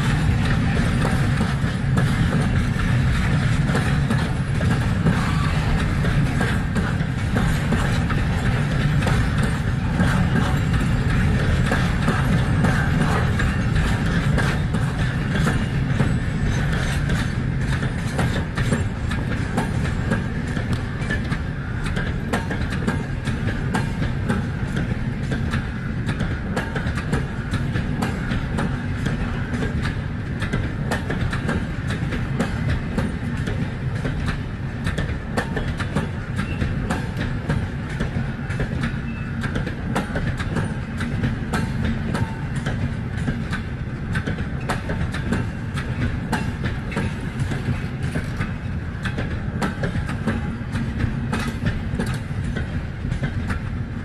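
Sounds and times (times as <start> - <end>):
train wheels rumbling on rails: 0.0 - 54.0
wheels clacking over rail joints: 0.0 - 54.0.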